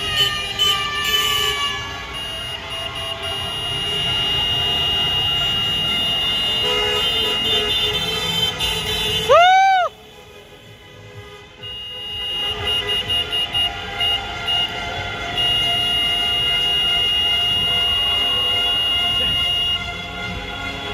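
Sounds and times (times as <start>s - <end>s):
car horns honking: 0.0s - 20.9s
passing traffic: 0.0s - 20.9s.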